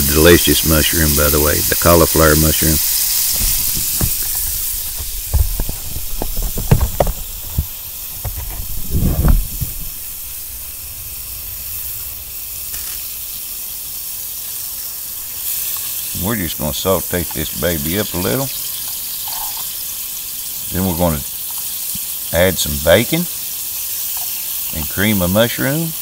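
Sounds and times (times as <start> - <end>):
mushrooms sizzling in butter: 0.0 - 26.0
sharp knocks and rustles: 2.8 - 10.5.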